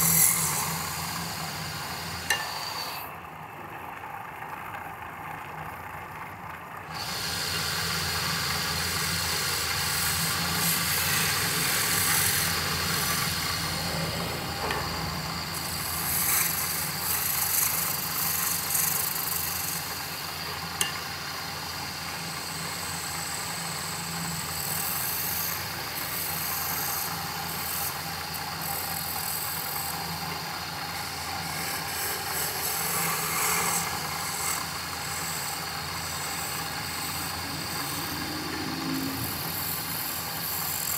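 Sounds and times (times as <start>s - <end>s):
turning tool cutting wood: 0.0s - 3.1s, 6.9s - 40.9s
wood lathe motor hum: 0.0s - 4.4s, 6.8s - 40.9s.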